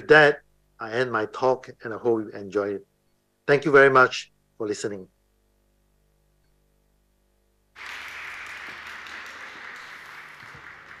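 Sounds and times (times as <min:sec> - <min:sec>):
audience applause: 0:07.8 - 0:11.0.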